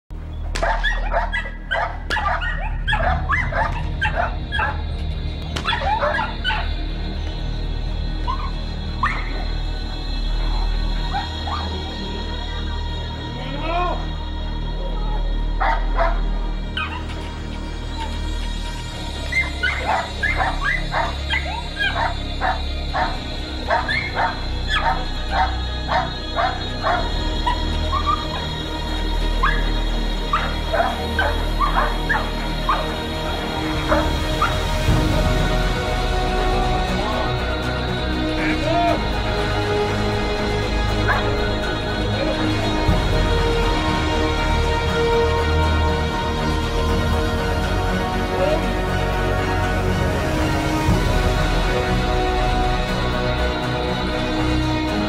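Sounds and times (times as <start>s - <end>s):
background music: 0.0s - 55.0s
dog barking and yipping: 0.6s - 4.8s, 5.6s - 6.8s, 8.3s - 9.4s, 15.6s - 16.2s, 16.8s - 17.3s, 19.3s - 28.5s, 29.4s - 29.7s, 30.3s - 33.0s, 41.1s - 41.3s
puppy yelping barks: 0.6s - 4.8s.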